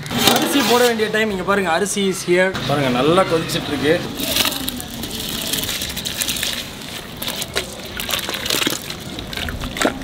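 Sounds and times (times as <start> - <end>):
pot boiling and bubbling: 4.2 - 10.0.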